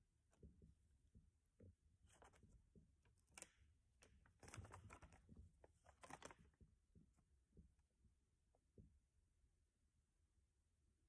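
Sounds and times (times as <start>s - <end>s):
paper rustling: 4.2s - 6.6s.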